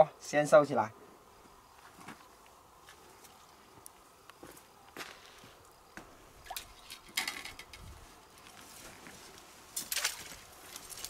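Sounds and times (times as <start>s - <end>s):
mesh net rustling and clattering: 6.4s - 11.0s.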